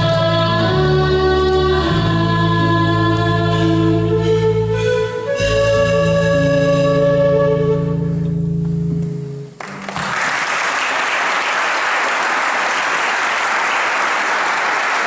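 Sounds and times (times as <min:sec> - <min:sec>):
audience applause: 0:09.6 - 0:15.0.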